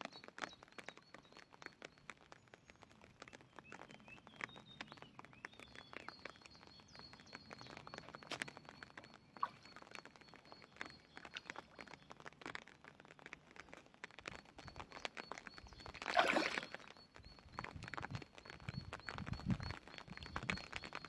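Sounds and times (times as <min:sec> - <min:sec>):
fish slurping at water surface: 0:16.0 - 0:16.8
swirling splash: 0:16.0 - 0:16.8.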